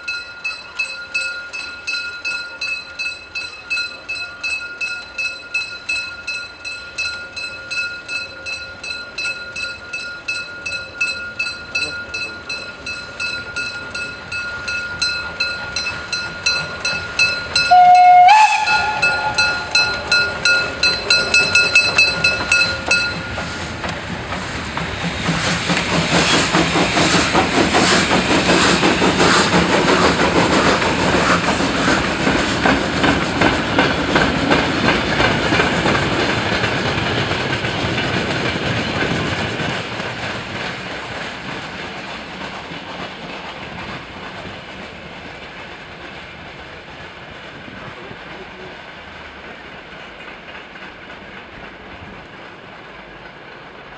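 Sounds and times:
steam locomotive chuffing: 0.1s - 53.9s
locomotive whistle blast: 17.7s - 20.5s
steam hiss: 18.4s - 37.6s.

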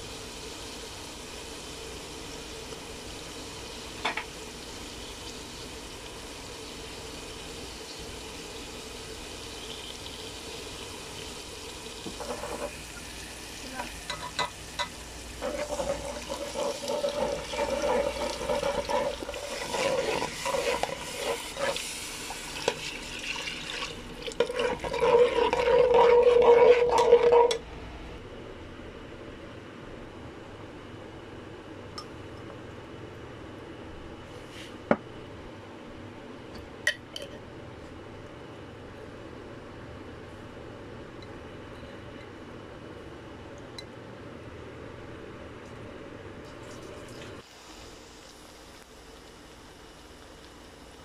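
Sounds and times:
spices frying in oil: 0.0s - 27.6s, 46.9s - 51.0s
wooden spatula scraping pot: 15.4s - 22.0s, 24.4s - 27.6s.

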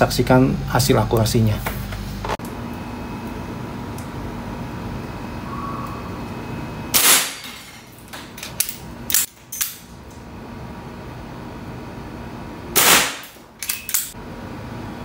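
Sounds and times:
air pistol shot: 6.9s - 7.4s, 12.8s - 13.4s.

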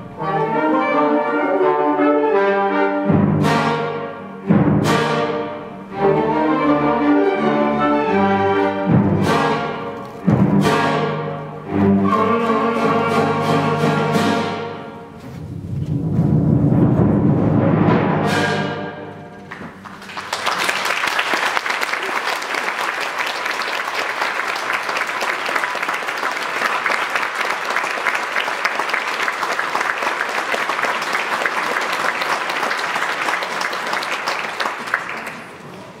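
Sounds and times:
audience applause: 19.5s - 36.0s.

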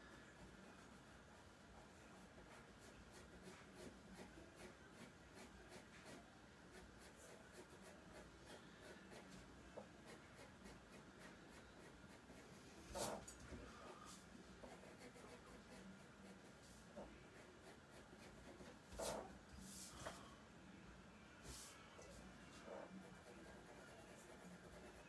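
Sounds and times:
pen scratching on paper: 1.9s - 19.4s, 22.5s - 25.0s.

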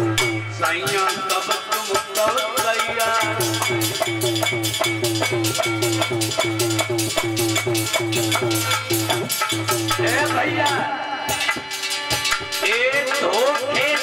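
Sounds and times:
drum beat with bending low notes: 0.0s - 14.0s.

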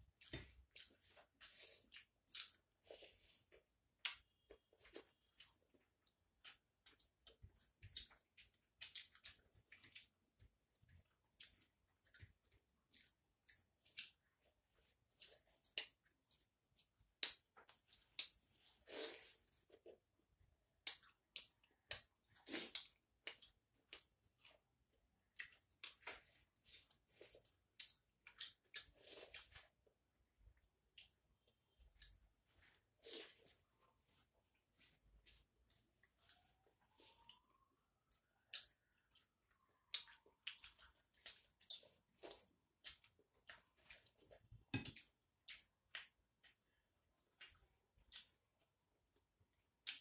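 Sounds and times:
wet chewing clicks and smacks: 0.0s - 3.0s, 3.8s - 18.5s, 20.7s - 29.9s, 37.0s - 50.0s.

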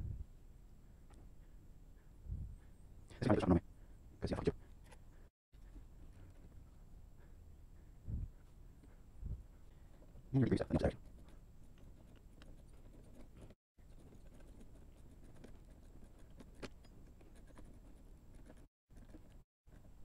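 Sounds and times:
faint scratching: 9.8s - 20.0s.

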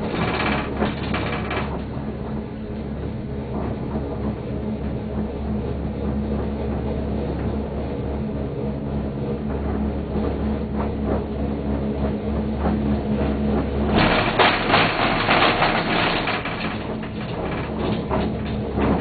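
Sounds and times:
metallic rattling clatter: 0.0s - 2.0s, 13.9s - 19.0s
low hum: 0.0s - 19.0s.

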